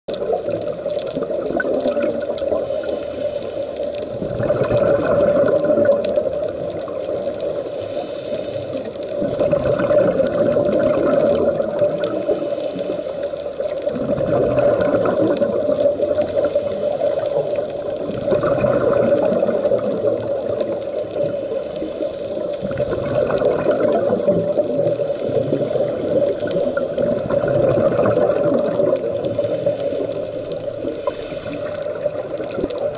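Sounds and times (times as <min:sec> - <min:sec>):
exhaled bubbles bursting: 0:00.1 - 0:03.1, 0:03.9 - 0:07.7, 0:08.6 - 0:13.0, 0:13.6 - 0:21.4, 0:22.0 - 0:32.9
regulator hiss: 0:02.4 - 0:04.2, 0:07.1 - 0:09.2, 0:11.9 - 0:13.8, 0:15.7 - 0:18.1, 0:20.4 - 0:22.6, 0:24.8 - 0:27.0, 0:29.0 - 0:32.9.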